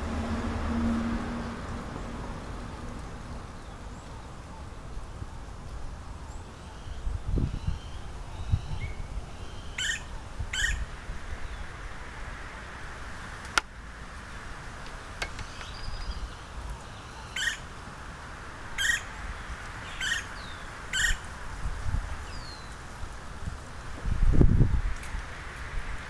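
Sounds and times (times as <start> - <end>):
woodpecker calls: 9.5 - 10.8, 15.2 - 16.2, 17.1 - 17.7, 18.8 - 19.1, 19.9 - 21.2
woodpecker tapping: 14.9 - 16.1.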